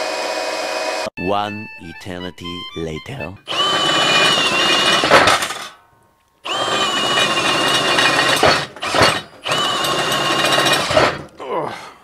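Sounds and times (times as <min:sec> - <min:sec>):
cordless drill boring through steel: 0:03.5 - 0:05.7, 0:06.4 - 0:11.3.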